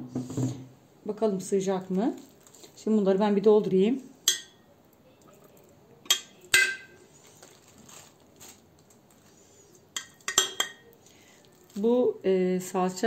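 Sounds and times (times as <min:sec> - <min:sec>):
metal spoon clinking on glass jar: 0:10.0 - 0:10.8.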